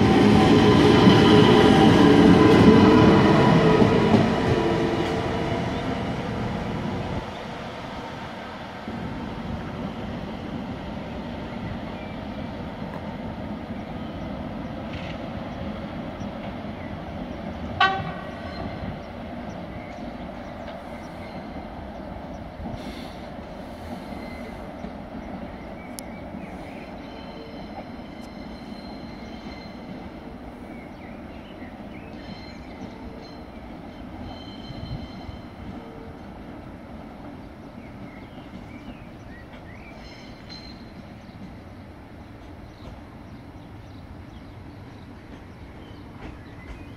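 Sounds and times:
train rumbling through station: 0:00.0 - 0:46.9
train horn toot: 0:17.8 - 0:18.9.

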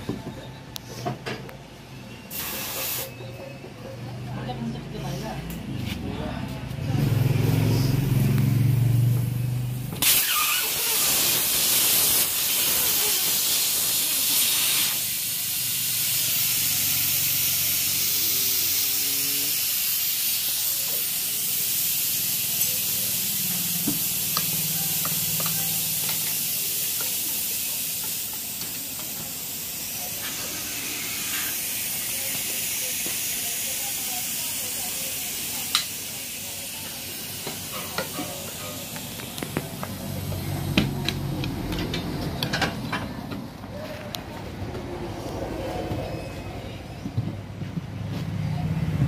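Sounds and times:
steady hiss: 0:10.0 - 0:39.4.

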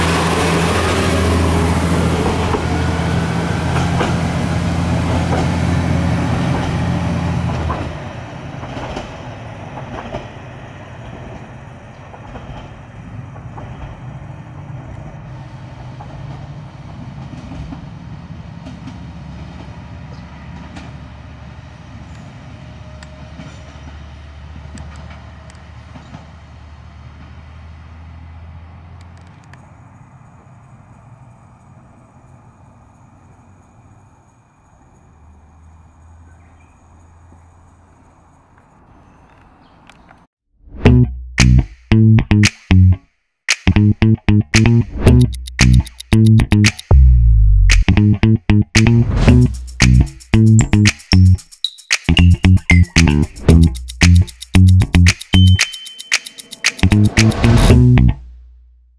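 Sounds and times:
diesel railcar engine drone: 0:00.0 - 0:38.5, 0:44.8 - 0:51.4
train wheels clicking: 0:48.8 - 0:57.7.

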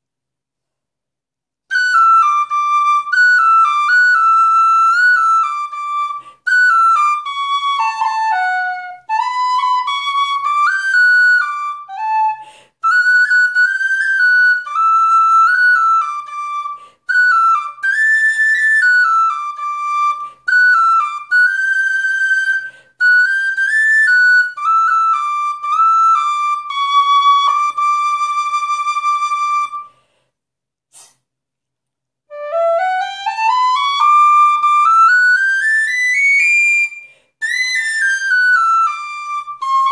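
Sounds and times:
player taking breaths: 0:12.4 - 0:12.8, 0:22.7 - 0:23.0, 0:29.9 - 0:30.4, 0:37.0 - 0:37.4
tin whistle tune: 0:32.3 - 0:39.9.

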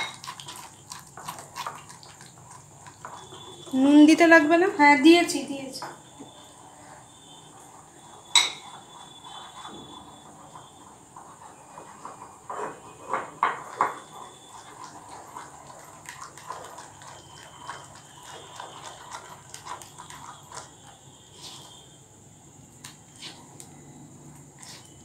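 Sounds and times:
batter wet squishing: 0:00.0 - 0:04.5, 0:13.7 - 0:21.9.

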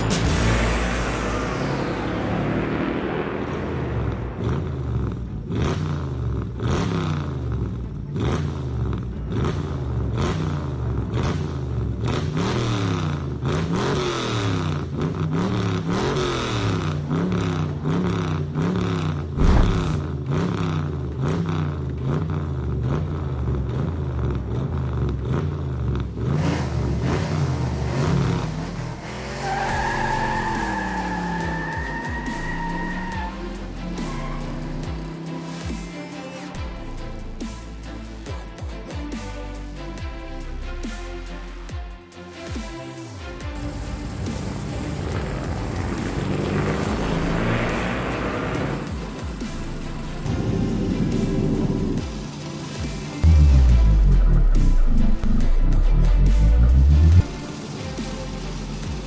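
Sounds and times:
car engine revving: 0:00.0 - 0:38.4, 0:43.1 - 0:59.0
loud thump: 0:19.4 - 0:20.2
tyres squealing: 0:29.3 - 0:34.8.

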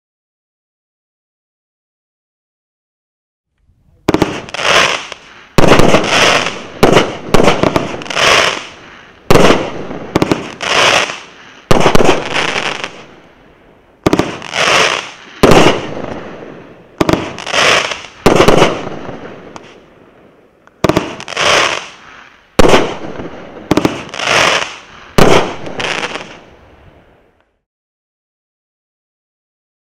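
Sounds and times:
fireworks cake bangs: 0:04.0 - 0:13.1, 0:14.0 - 0:16.4, 0:17.0 - 0:19.8, 0:20.8 - 0:22.0, 0:22.6 - 0:26.4.

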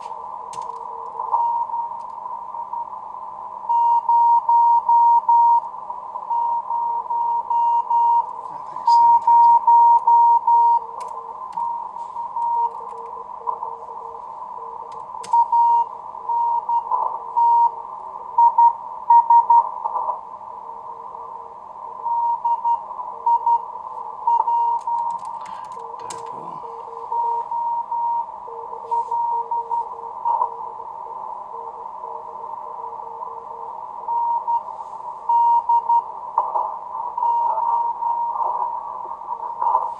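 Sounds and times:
lower morse code tone: 0:00.0 - 0:03.0, 0:03.6 - 0:17.8, 0:18.4 - 0:19.7, 0:20.7 - 0:36.2, 0:37.2 - 0:38.4
receiver hiss: 0:00.0 - 0:39.9
higher morse code tone: 0:24.3 - 0:30.7.

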